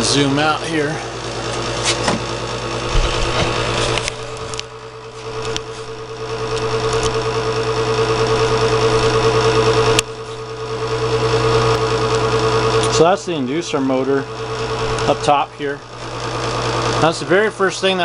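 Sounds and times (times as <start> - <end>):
furnace inducer motor humming: 0.0 - 18.0
low bumps: 2.8 - 6.0.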